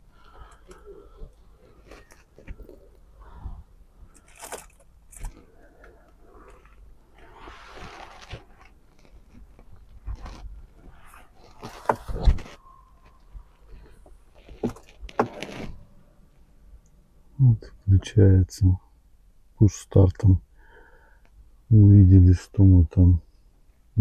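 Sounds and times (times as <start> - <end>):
crinkly rustling: 0.1 - 3.3, 3.9 - 16.4.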